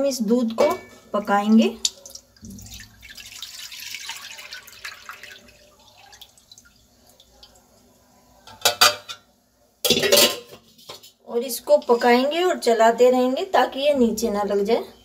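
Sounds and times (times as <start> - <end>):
metal pot clanking on stove: 0.6 - 1.1, 8.5 - 11.1
milk pouring into pan: 2.0 - 7.8.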